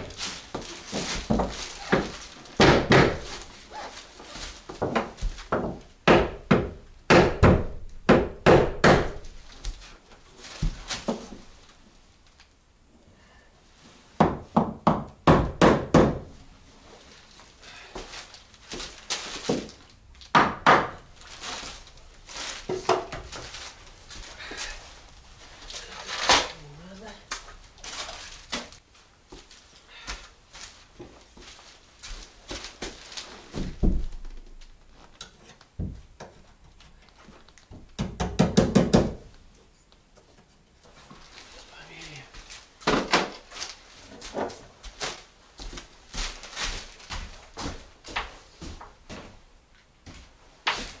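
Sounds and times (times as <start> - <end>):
handling noise: 0.0 - 5.5, 21.0 - 26.7
hammer striking wooden boards: 2.6 - 3.3, 4.8 - 9.2, 14.2 - 16.3, 20.3 - 21.0, 38.0 - 39.3.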